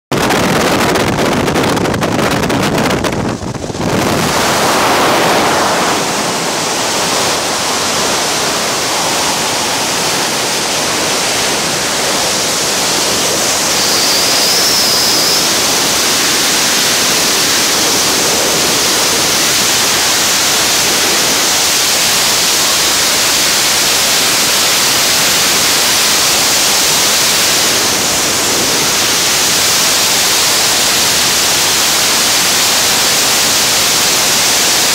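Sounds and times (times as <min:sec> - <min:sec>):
wind rushing over microphone: 0:00.1 - 0:34.9
airplane engines and propeller wash: 0:00.3 - 0:34.9.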